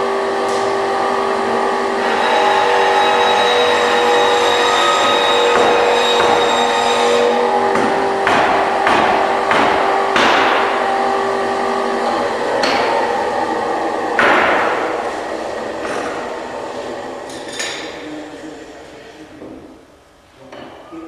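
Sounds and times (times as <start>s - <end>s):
steady hum: 0.0s - 21.0s
hammer striking wood: 5.0s - 6.9s, 7.7s - 10.8s, 12.6s - 13.0s, 14.2s - 14.9s.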